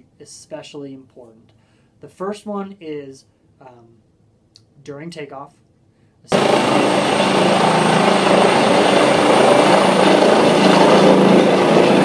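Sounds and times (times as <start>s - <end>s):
helicopter rotor and engine: 6.3s - 12.0s
high whine: 6.3s - 12.0s.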